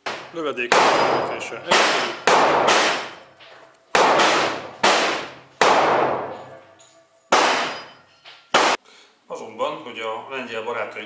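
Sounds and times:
revolver shots echoing: 0:00.0 - 0:03.2, 0:03.9 - 0:08.0.

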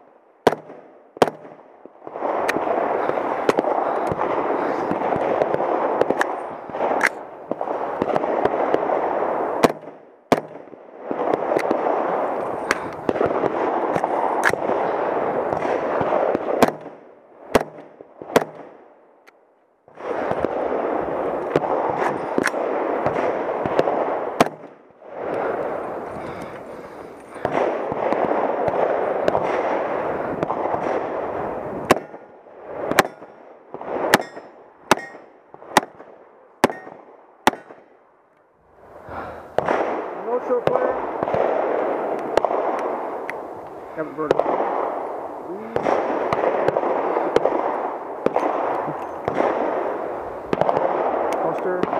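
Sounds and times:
rifle shots hitting steel: 0:32.9 - 0:33.4, 0:34.1 - 0:36.0, 0:36.6 - 0:37.9.

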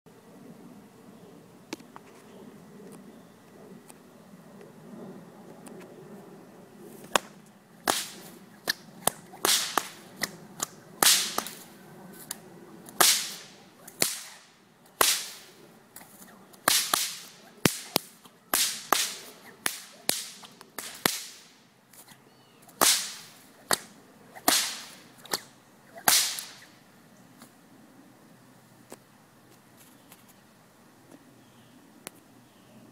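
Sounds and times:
bullwhips cracking: 0:07.0 - 0:26.8.

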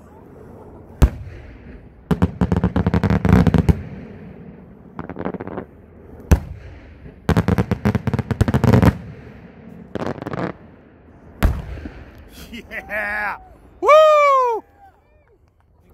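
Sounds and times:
firework crackling: 0:00.8 - 0:13.2.

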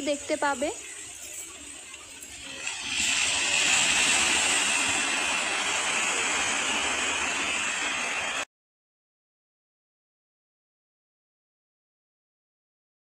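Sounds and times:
waves breaking on rocky shore: 0:00.8 - 0:08.5.

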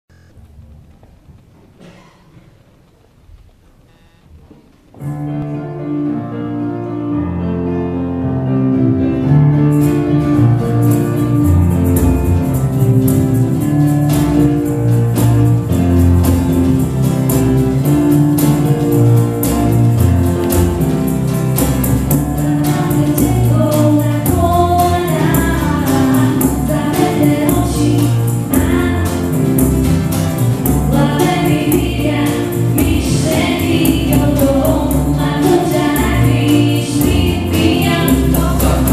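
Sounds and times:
keyboard and guitars: 0:05.2 - 0:38.9
tambourine shaking: 0:09.8 - 0:38.9
people singing: 0:22.4 - 0:29.7, 0:30.6 - 0:38.9.

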